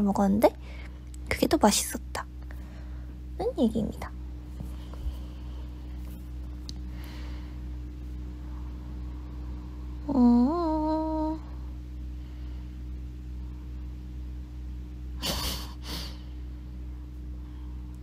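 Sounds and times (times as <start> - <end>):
low electrical hum: 0.0 - 18.0
woman humming: 9.9 - 11.8.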